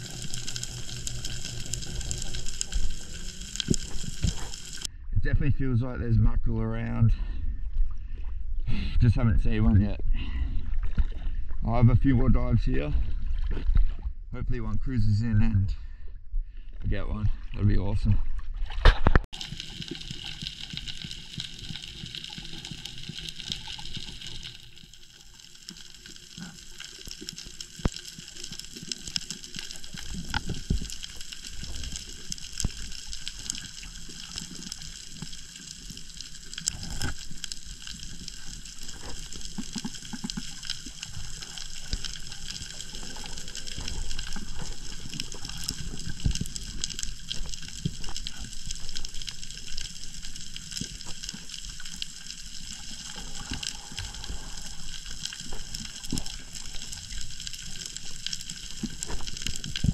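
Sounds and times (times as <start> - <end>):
sharp clicks and crackles: 0.0 - 4.9, 18.8 - 59.9
underwater hiss: 0.0 - 4.9
low rumble of moving water: 0.0 - 59.9.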